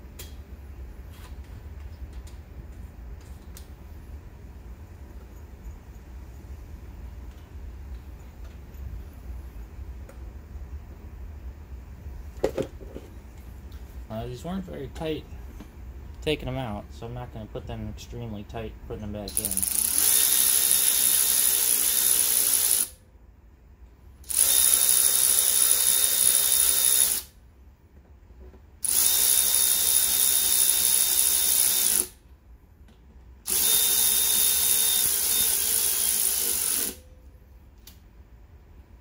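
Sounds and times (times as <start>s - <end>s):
cordless power ratchet whine: 19.3s - 23.0s, 24.2s - 27.4s, 28.8s - 32.2s, 33.5s - 37.0s.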